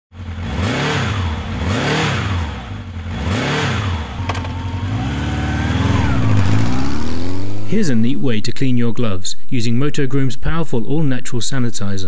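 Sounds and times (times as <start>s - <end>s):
engine revving: 0.1s - 8.4s.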